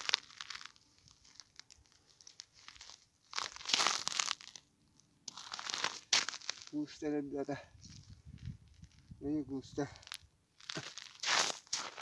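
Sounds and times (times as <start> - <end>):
frozen line crunching: 0.0 - 7.0, 9.9 - 12.0.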